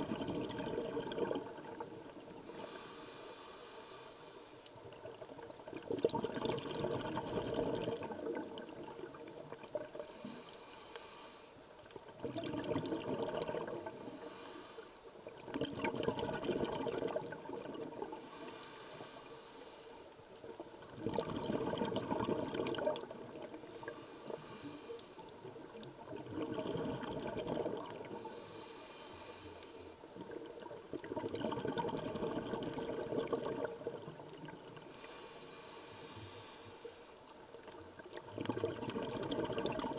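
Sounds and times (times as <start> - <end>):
bubbly exhale underwater: 0.0 - 2.6, 4.8 - 10.2, 12.0 - 14.2, 15.3 - 18.4, 20.4 - 28.4, 30.0 - 35.1, 37.6 - 39.9
regulator inhalation hiss: 2.4 - 4.8, 10.0 - 11.7, 13.9 - 15.3, 18.1 - 20.2, 23.5 - 25.5, 28.1 - 30.0, 34.7 - 37.2.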